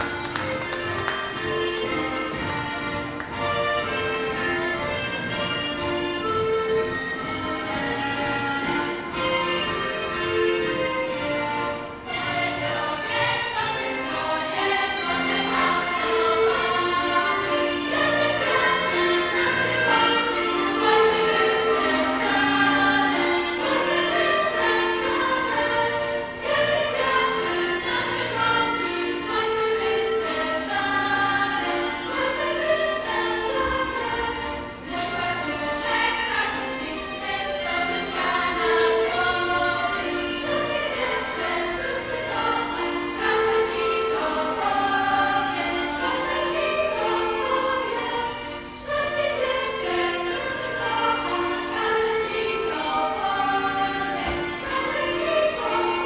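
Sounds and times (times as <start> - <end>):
instrumental accompaniment: 0.0 - 56.0
women singing in chorus: 12.1 - 56.0.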